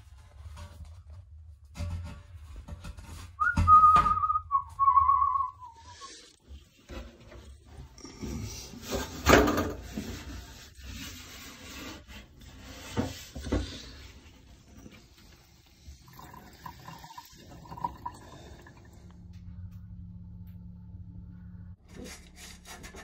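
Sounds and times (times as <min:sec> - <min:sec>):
hand scraping inside metal tank: 0:04.8 - 0:15.4.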